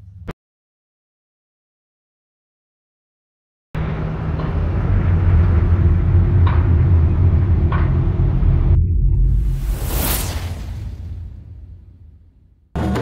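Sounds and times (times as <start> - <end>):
low rumble by the water: 3.8 - 12.8.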